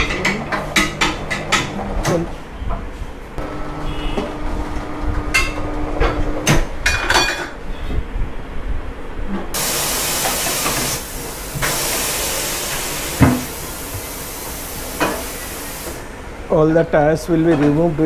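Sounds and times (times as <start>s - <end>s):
metal clanks and knocks: 0.0s - 2.3s
air hissing from a tyre: 9.6s - 16.2s.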